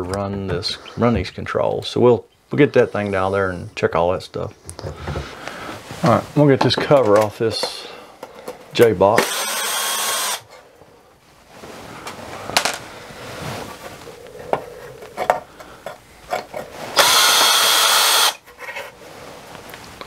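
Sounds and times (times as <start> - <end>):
cordless drill motor running: 9.2 - 10.4, 17.0 - 18.4.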